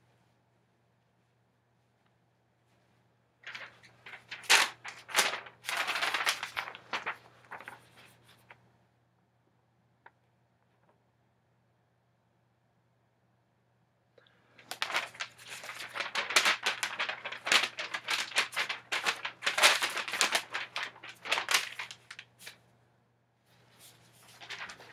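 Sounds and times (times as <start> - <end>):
paper crinkling and rustling: 3.4 - 8.6, 14.6 - 22.7, 23.5 - 24.9.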